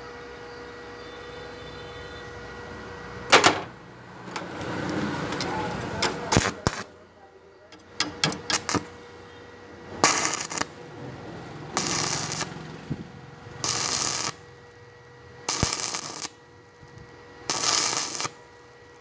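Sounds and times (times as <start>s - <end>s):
welding arc crackling: 4.2s - 7.0s, 7.8s - 9.2s, 9.8s - 19.0s.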